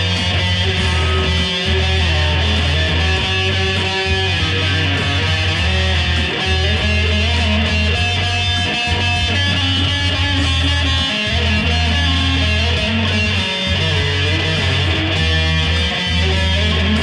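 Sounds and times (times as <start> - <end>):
electric guitar held notes: 0.0 - 17.0
low bass note: 0.7 - 5.2.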